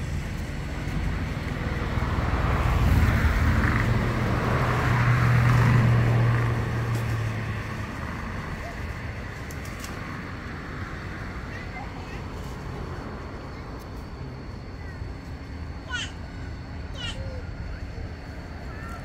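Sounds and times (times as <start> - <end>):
vehicle passing by: 0.0 - 19.0.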